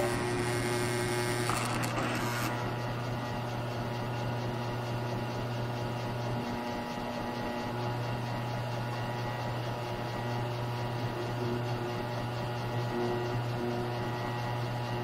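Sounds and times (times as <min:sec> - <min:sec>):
drill cutting metal tube: 0:00.0 - 0:02.8
drill press humming: 0:00.0 - 0:15.0.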